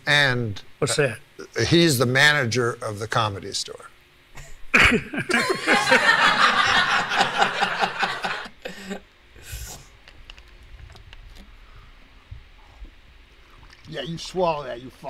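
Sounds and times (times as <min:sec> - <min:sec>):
man laughing: 0:04.4 - 0:09.0.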